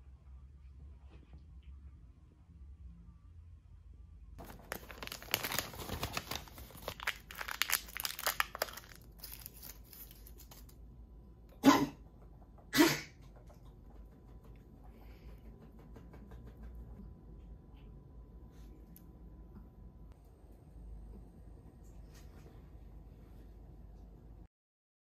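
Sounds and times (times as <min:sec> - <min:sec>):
packaging torn open and crinkled: 0:04.4 - 0:10.8.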